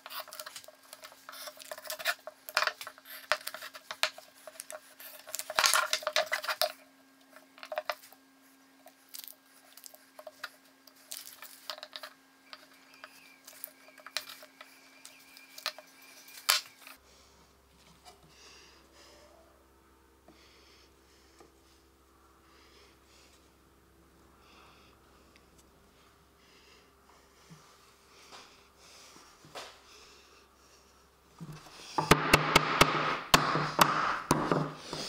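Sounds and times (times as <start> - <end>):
clicks and scrapes on wood: 0.0 - 6.8
faint steady hum: 0.0 - 35.0.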